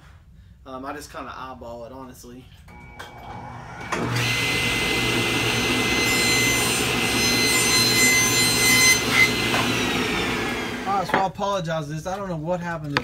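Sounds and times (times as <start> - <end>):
table saw motor hum: 2.7 - 11.1
saw cutting wood whine: 2.8 - 11.2.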